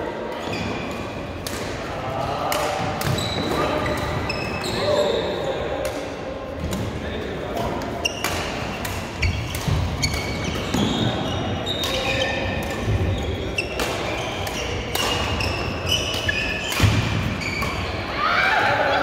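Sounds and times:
shoes squeaking on court: 3.0s - 5.6s, 7.9s - 18.0s
rackets striking shuttlecock: 7.6s - 11.2s, 11.8s - 17.8s.

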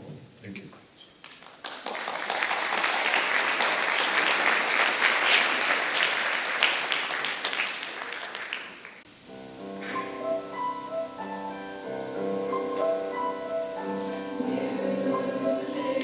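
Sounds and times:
audience applauding: 1.2s - 9.1s.

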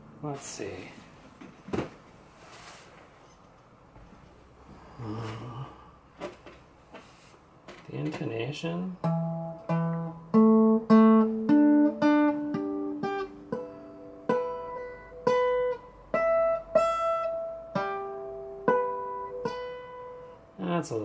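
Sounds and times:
guitar notes plucked: 8.9s - 20.6s.

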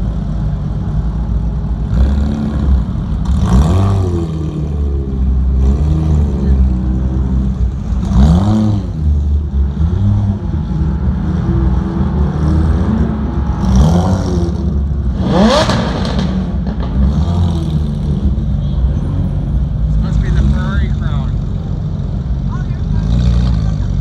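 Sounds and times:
car engines at low speed: 0.0s - 24.0s
engine revving: 1.8s - 18.5s.

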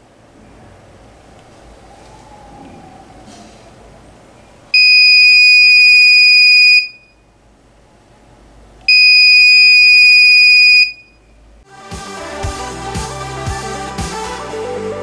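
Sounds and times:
high-pitched buzzer beeps: 4.8s - 7.2s, 8.9s - 11.2s.

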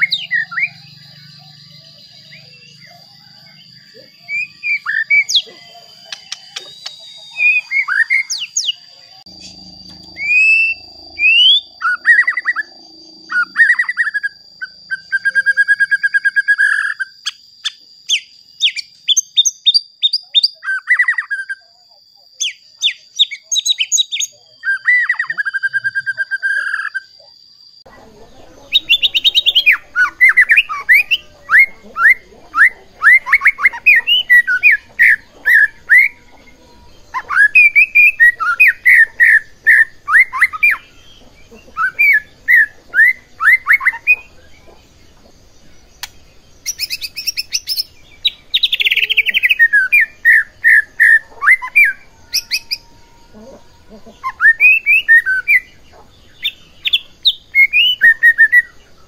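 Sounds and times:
bird song with whistles and trills: 0.0s - 59.0s
thin high whine: 8.9s - 14.6s.

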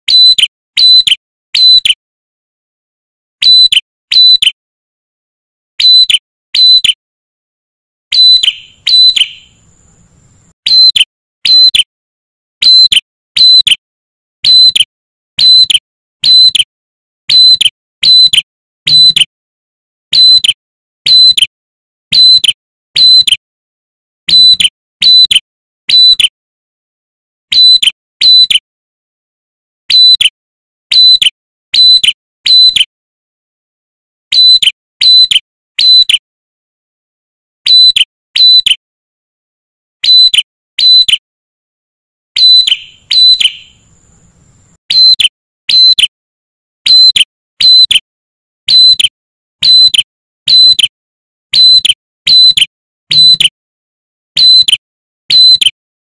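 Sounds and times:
bird calling high ringing notes: 8.1s - 9.8s, 10.7s - 11.8s, 42.4s - 44.1s, 44.9s - 46.0s.

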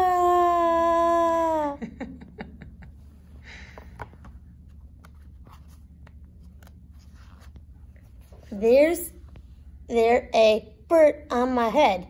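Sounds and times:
low room hum: 0.0s - 12.0s
soft clicks and paper rustles: 3.7s - 8.6s
book pages turning: 3.8s - 8.6s.

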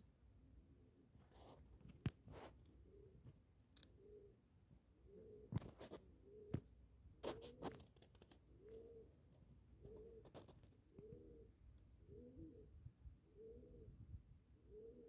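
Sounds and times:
dove cooing: 2.8s - 9.2s, 9.8s - 15.0s.

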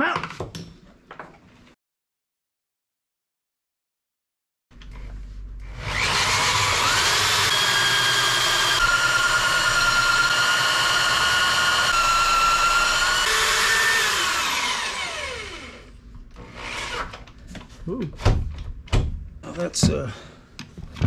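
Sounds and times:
electric drill boring into wood: 5.6s - 17.2s.

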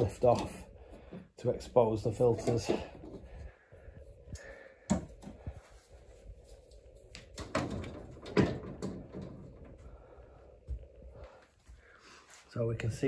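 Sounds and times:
tv parts knocking and clattering: 2.0s - 3.3s, 7.0s - 9.8s.

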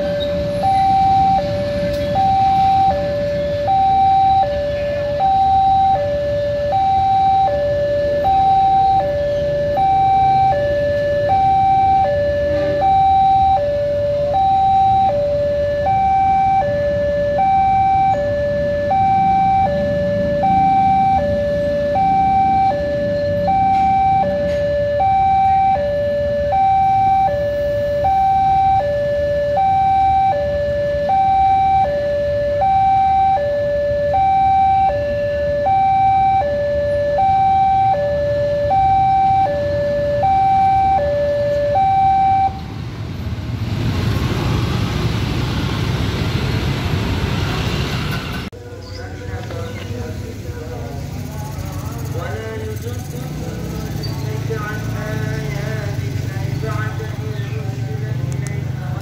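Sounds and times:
two-tone crossing alarm: 0.0s - 42.9s
train rumbling on rails: 42.6s - 48.6s.

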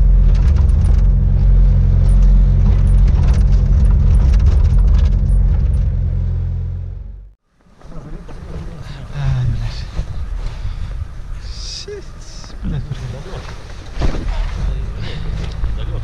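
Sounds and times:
diesel engine humming: 0.0s - 7.4s.

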